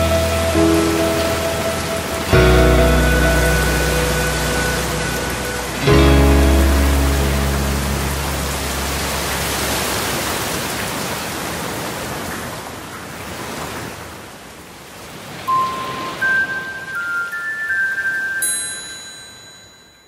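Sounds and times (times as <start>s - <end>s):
glockenspiel chime notes: 0.0s - 8.6s, 15.5s - 20.0s
acoustic guitar chord ringing: 0.0s - 9.4s, 15.5s - 19.8s.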